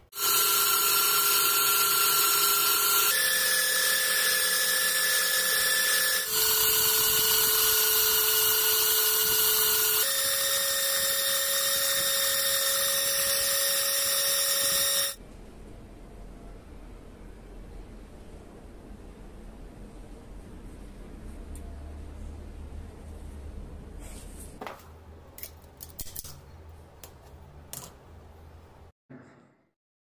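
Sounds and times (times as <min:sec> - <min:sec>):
belt sander grinding steel: 0:00.2 - 0:15.2.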